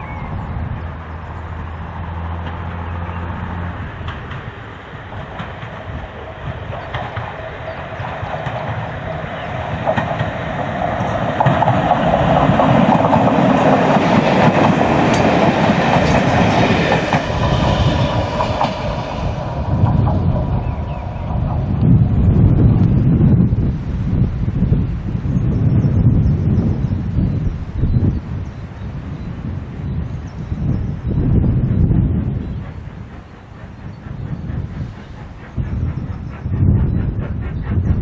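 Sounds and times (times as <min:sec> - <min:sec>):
diesel train engines droning: 0:00.0 - 0:38.0
wheels clicking over rail joints: 0:01.8 - 0:20.8.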